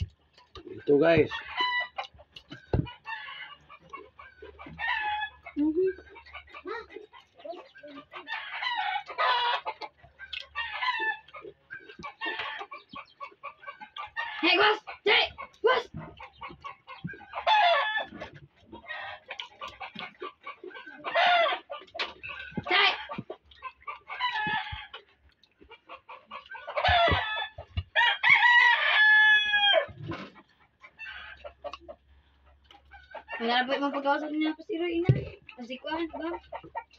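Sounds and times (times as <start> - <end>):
chickens clucking: 0.0 - 36.9
loud chicken calls: 1.3 - 6.6, 8.2 - 32.0
rooster crowing: 1.4 - 2.0, 4.7 - 5.6, 8.3 - 9.8, 17.4 - 18.2, 21.1 - 21.6, 24.1 - 25.0, 26.6 - 30.0.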